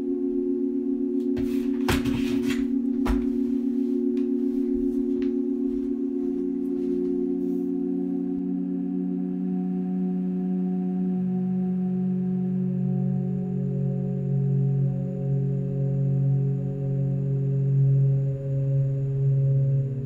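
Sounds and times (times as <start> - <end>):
lower tone: 0.0 - 20.0
sustained droning tones: 0.0 - 20.0.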